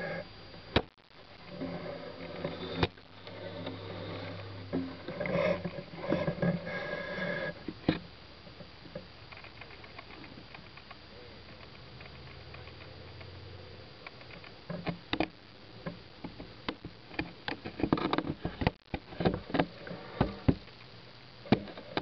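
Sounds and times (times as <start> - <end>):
steady hiss: 0.0 - 22.0
sharp clicks and knocks: 14.0 - 20.9.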